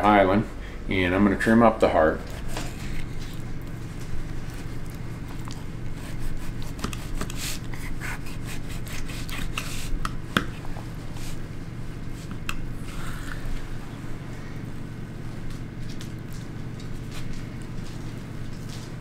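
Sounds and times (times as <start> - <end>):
low hum: 0.0 - 19.0
knife cutting on plastic board: 6.0 - 10.5.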